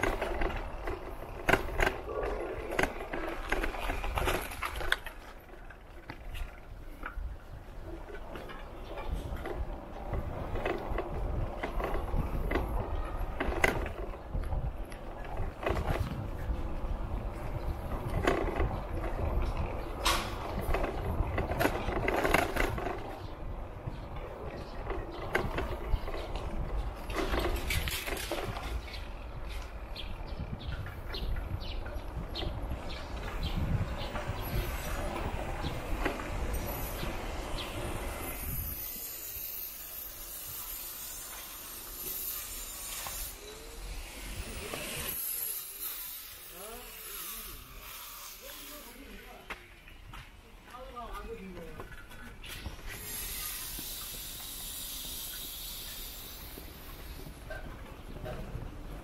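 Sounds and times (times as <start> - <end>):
low rumble of riding: 0.0 - 39.1, 48.9 - 59.0
wind on microphone: 6.3 - 45.4.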